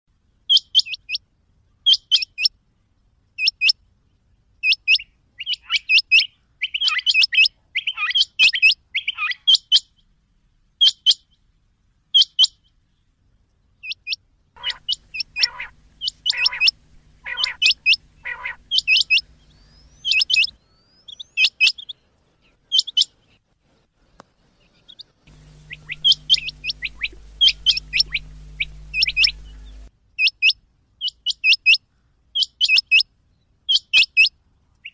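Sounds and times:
quail calling high-pitched notes: 0:13.8 - 0:21.9, 0:25.3 - 0:30.4
low steady hum: 0:14.5 - 0:20.9, 0:25.2 - 0:29.9.

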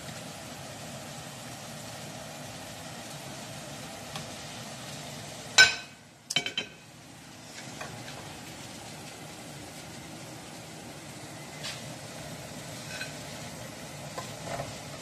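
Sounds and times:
fries sizzling in hot oil: 0:00.0 - 0:15.0
plate clinking on metal grate: 0:05.6 - 0:06.8, 0:12.8 - 0:13.2.

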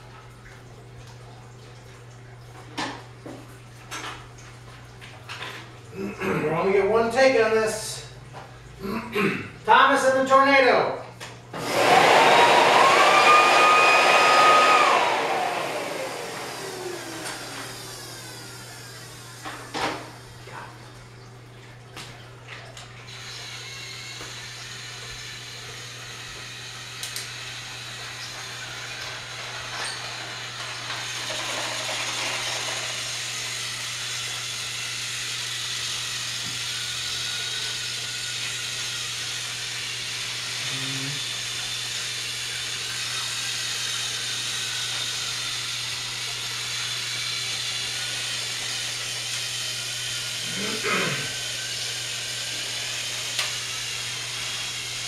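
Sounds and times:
toy trains whirring on track: 0:23.1 - 0:55.0.

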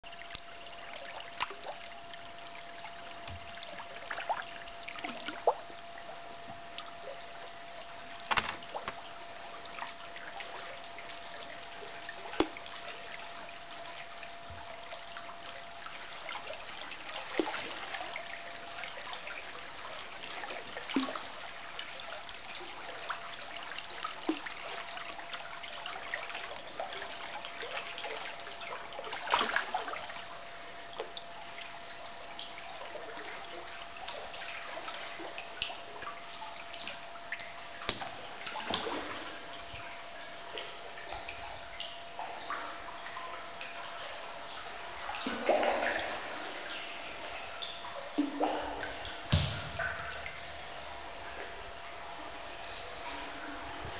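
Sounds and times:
faint steady tone: 0:00.0 - 0:53.9
small splashes: 0:00.2 - 0:05.8, 0:08.1 - 0:13.2, 0:14.7 - 0:53.5
water lapping against kayak hull: 0:32.4 - 0:53.9.

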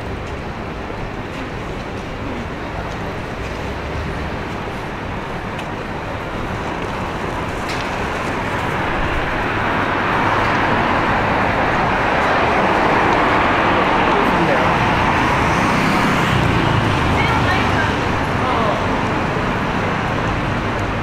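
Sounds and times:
city street traffic: 0:00.0 - 0:21.0.

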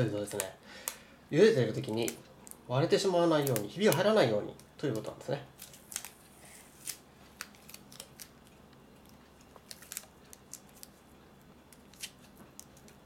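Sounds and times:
cellophane tape crinkling: 0:03.3 - 0:04.2, 0:05.6 - 0:11.1, 0:11.7 - 0:13.0.

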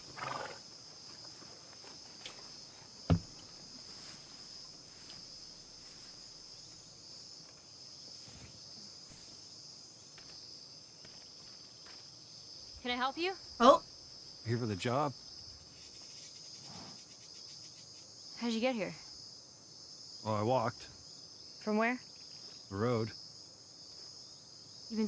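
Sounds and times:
insects chirring: 0:00.0 - 0:25.0
sharp thump: 0:03.1 - 0:03.4.

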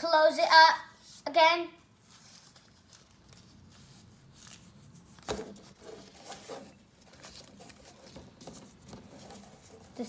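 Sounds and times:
paper rustling as folded: 0:02.0 - 0:10.0.

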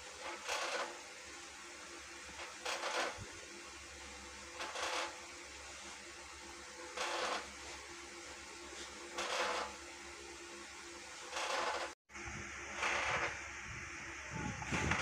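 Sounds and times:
steady background hum: 0:00.0 - 0:15.0
wire whisk scraping a plastic bowl: 0:00.2 - 0:01.0, 0:02.4 - 0:03.2, 0:04.6 - 0:05.2, 0:07.0 - 0:07.5, 0:09.1 - 0:09.8, 0:11.3 - 0:12.0.

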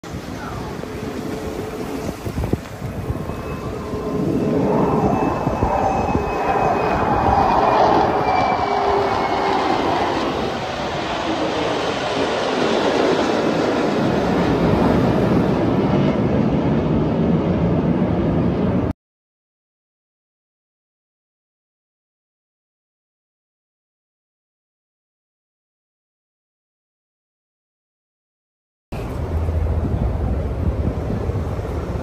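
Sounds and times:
jet engine roar: 0:00.0 - 0:18.9, 0:29.0 - 0:32.0
faint whining tones sliding down: 0:00.6 - 0:11.4.

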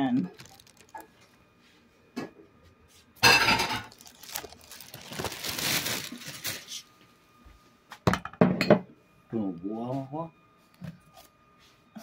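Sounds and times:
crinkling and rustling: 0:00.2 - 0:01.4, 0:03.2 - 0:06.9.

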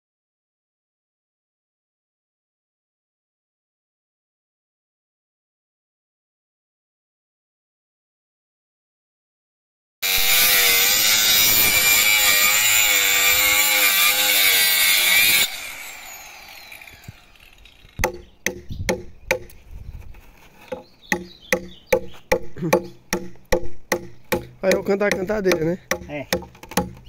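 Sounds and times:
circular saw cutting wood: 0:10.0 - 0:18.6
hatchet chopping wood: 0:18.0 - 0:19.6, 0:20.7 - 0:27.0.

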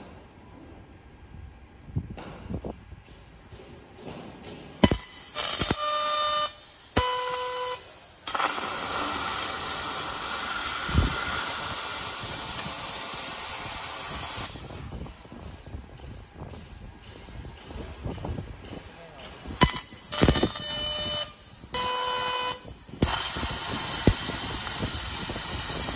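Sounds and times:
laser piercing hiss and whistle: 0:04.8 - 0:14.7, 0:19.6 - 0:25.9
loud hiss of assist gas: 0:04.8 - 0:15.0, 0:22.4 - 0:25.9.

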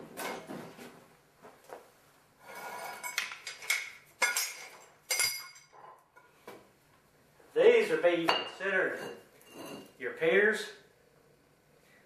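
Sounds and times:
concrete blocks scraping: 0:02.4 - 0:03.6.

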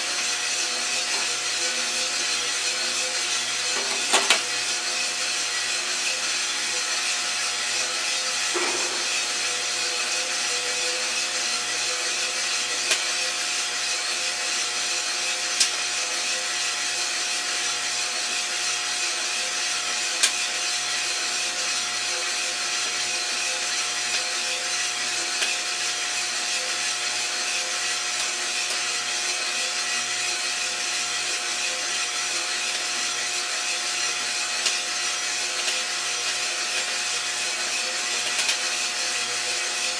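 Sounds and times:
coffee roaster fan whirring: 0:00.0 - 0:39.9
coffee beans tumbling: 0:00.4 - 0:10.4, 0:22.9 - 0:39.9.

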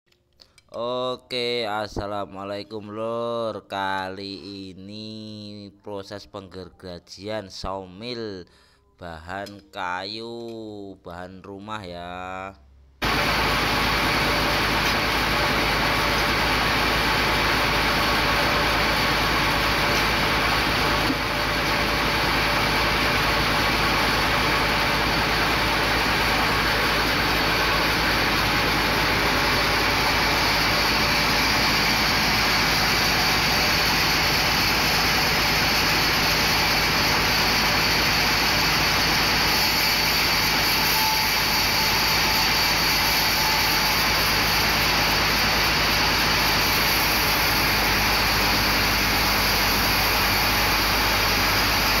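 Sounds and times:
band sawmill running: 0:13.0 - 0:52.0.

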